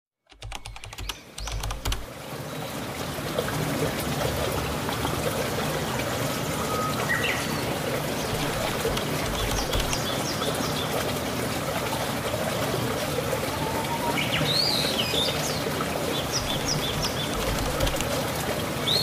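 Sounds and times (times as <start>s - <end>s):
quick clicks: 0.3s - 2.1s, 8.3s - 10.1s, 16.4s - 18.2s
rushing trickling water: 0.8s - 19.0s.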